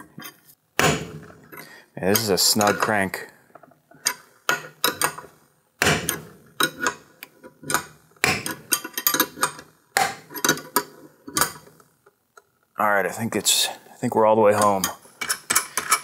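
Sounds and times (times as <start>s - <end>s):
tool clicks and knocks: 3.6s - 11.8s, 14.6s - 16.0s
metal press fit creaking: 4.0s - 5.3s, 5.9s - 11.7s.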